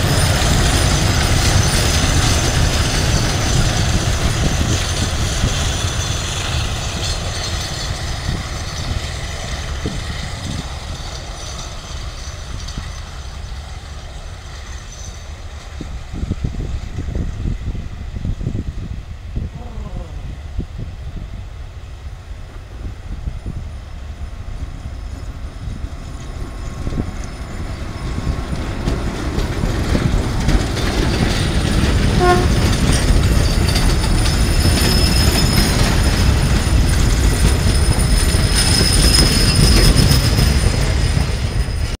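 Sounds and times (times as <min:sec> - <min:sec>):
high metallic wheel squeal: 0:00.0 - 0:15.8, 0:24.9 - 0:30.1, 0:30.8 - 0:42.0
train wheels rumbling on rails: 0:00.0 - 0:42.0.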